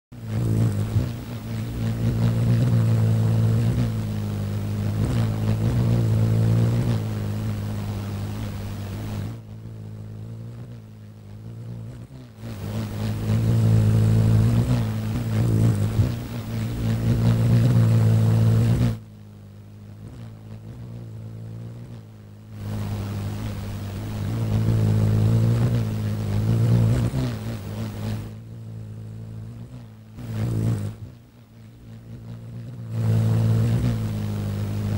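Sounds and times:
hummingbird wings whirring: 0.1 - 34.9.

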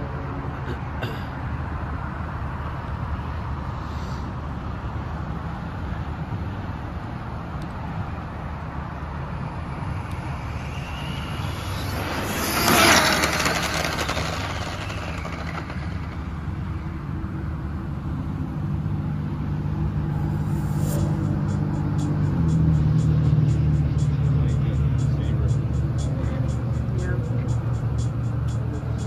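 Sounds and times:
traffic noise: 0.0 - 29.0
rc car motor whine: 9.8 - 16.8.

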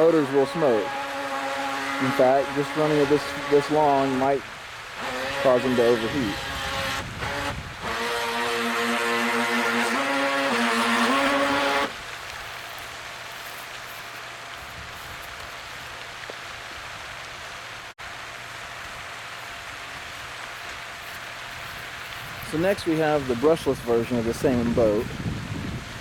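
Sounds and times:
fountain water hissing: 0.0 - 9.2, 10.0 - 25.8
toy boat motors whining: 0.0 - 12.6.

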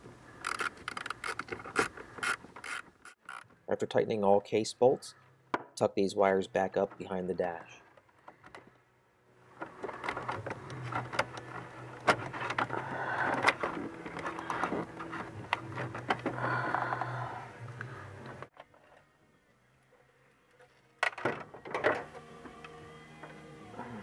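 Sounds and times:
wires and plastic rustling: 9.5 - 17.2.

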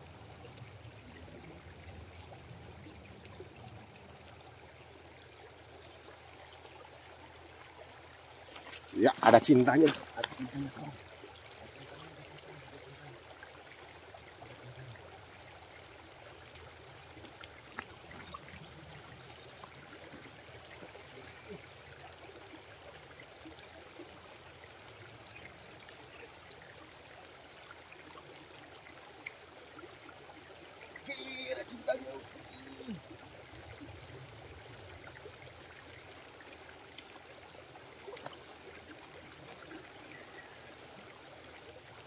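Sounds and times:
faint outdoor hiss: 0.0 - 42.0
faint ticks: 17.2 - 18.6, 38.0 - 38.5.

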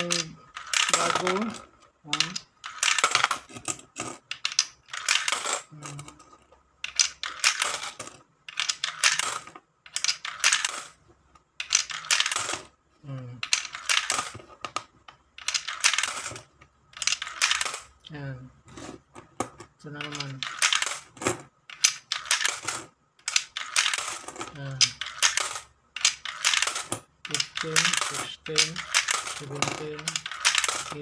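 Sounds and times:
coins clinking through coin mechanism: 0.0 - 11.0, 11.6 - 12.7, 13.3 - 14.8, 15.4 - 18.0, 19.8 - 31.0.

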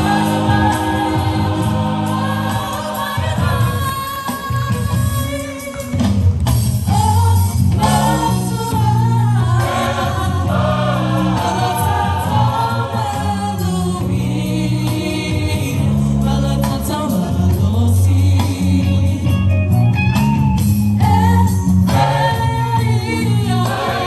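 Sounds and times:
choir singing a carol: 0.0 - 5.9, 7.8 - 18.6, 21.9 - 24.0
bass-line accompaniment: 0.0 - 24.0.

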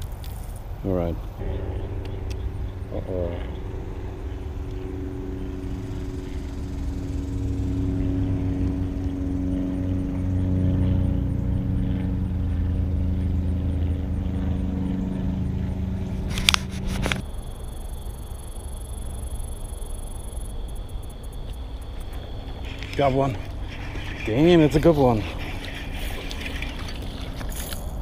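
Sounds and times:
highway traffic engine hum: 0.0 - 28.0.

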